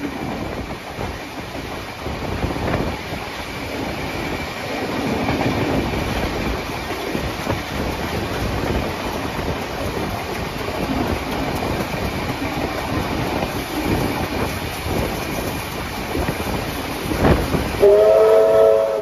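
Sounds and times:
train wheels rumbling on track: 0.0 - 19.0
steam locomotive chime whistle: 17.8 - 19.0.

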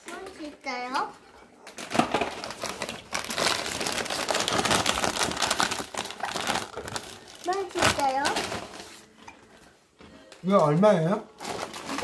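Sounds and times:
plastic wrapper crinkling: 1.7 - 9.1, 10.4 - 12.0.

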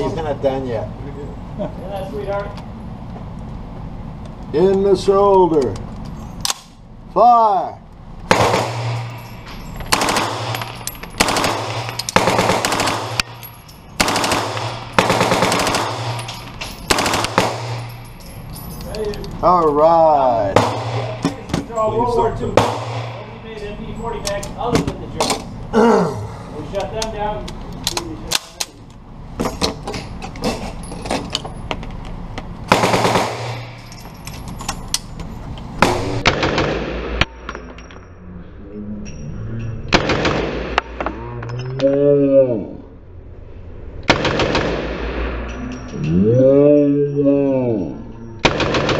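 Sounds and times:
automatic rifle firing bursts: 8.3 - 9.0, 9.9 - 13.3, 14.0 - 16.2, 16.9 - 17.8, 32.7 - 33.8, 35.8 - 37.1, 48.5 - 48.9.

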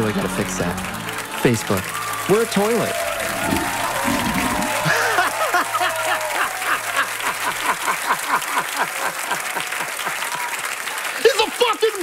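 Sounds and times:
applause: 0.0 - 12.0
man laughing hard: 4.7 - 9.4.

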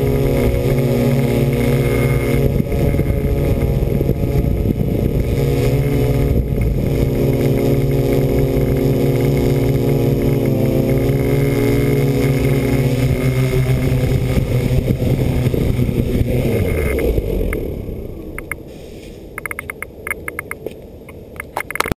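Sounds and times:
electric motors and propellers droning: 0.0 - 21.9
faint clicks: 18.4 - 22.0.

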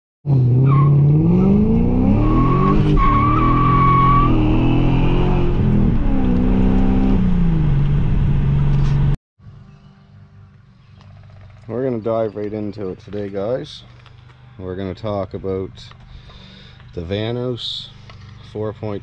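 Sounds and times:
car engine accelerating hard: 0.3 - 9.2
high tyre squeal: 0.6 - 4.6.

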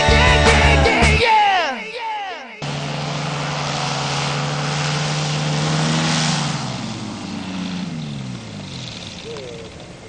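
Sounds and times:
small engine and propeller running: 2.6 - 10.0.

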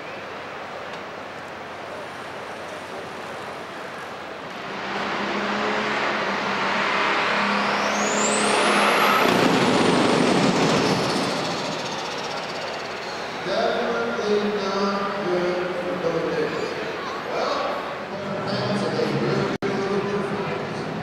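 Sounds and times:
steady background noise: 0.0 - 21.0
high whine: 4.4 - 16.0
tractor engine running hard: 4.6 - 13.5.

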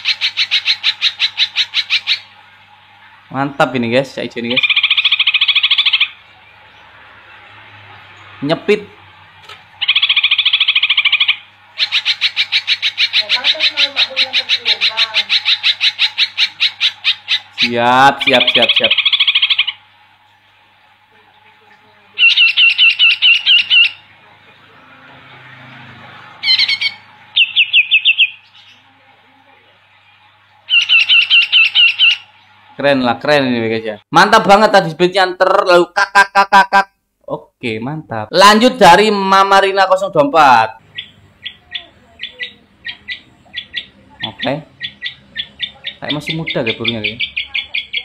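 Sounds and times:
bird chattering song: 0.0 - 3.8, 4.4 - 7.0, 9.8 - 20.4, 21.3 - 25.6, 26.2 - 32.6, 40.8 - 48.0.

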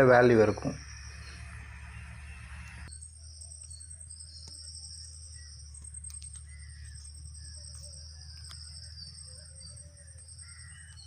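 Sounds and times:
insects trilling: 0.0 - 11.0
faint bird calls: 5.4 - 11.0.

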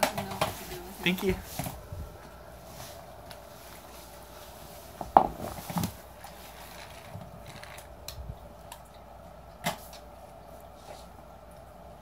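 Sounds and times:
ball knocking on wooden floor: 5.0 - 5.5.

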